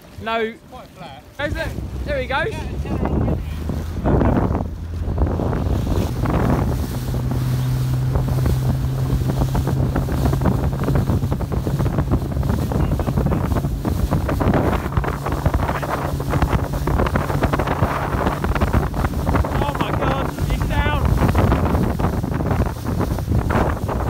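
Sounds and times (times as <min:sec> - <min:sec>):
boat engine droning: 0:00.0 - 0:24.0
water splashing: 0:00.0 - 0:24.0
wind buffeting microphone: 0:01.2 - 0:24.0.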